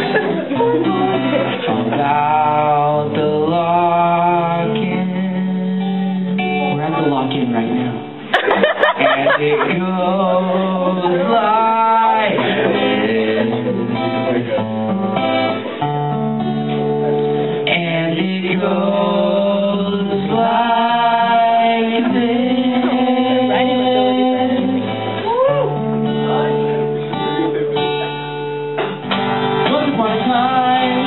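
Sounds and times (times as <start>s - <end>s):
man singing into a microphone: 0.0s - 8.2s, 8.9s - 15.3s, 17.5s - 25.8s, 29.6s - 31.0s
acoustic guitar chords: 0.0s - 31.0s.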